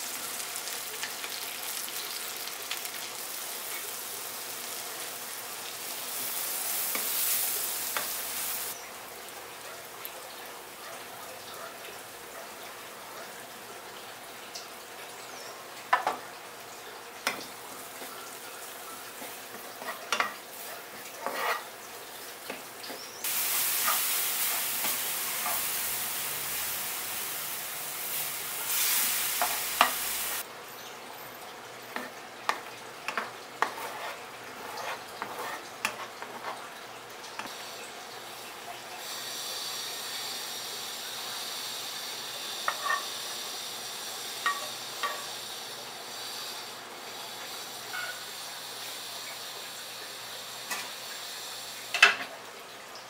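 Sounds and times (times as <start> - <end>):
loud sizzling hiss: 0.0 - 9.3, 23.2 - 30.5, 37.4 - 52.2
mushrooms sizzling in pan: 0.0 - 10.8, 11.4 - 30.5, 37.4 - 52.3
spatula scraping pan: 19.2 - 21.8, 23.5 - 25.8, 31.9 - 36.6, 42.6 - 43.2.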